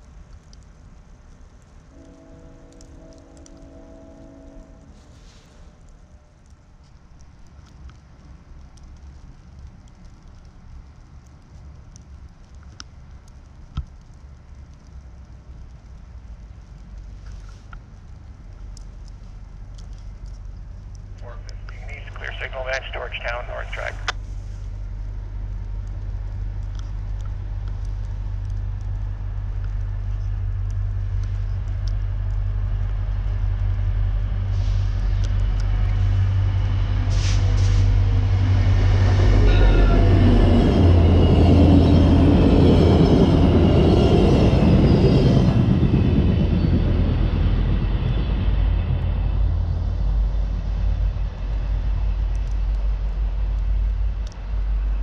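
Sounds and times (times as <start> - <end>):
train passing: 1.9 - 6.2, 21.2 - 24.1, 32.0 - 55.0.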